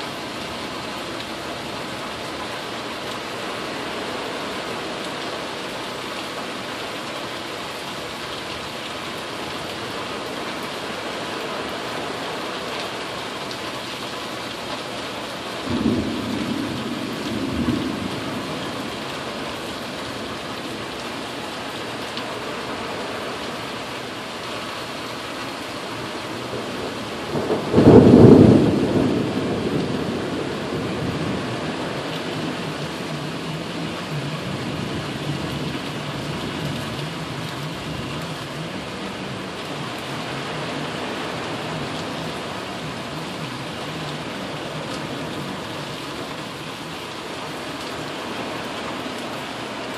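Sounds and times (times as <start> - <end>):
steady rain: 0.0 - 49.9
thunder rumbling: 15.6 - 21.0, 26.5 - 45.9.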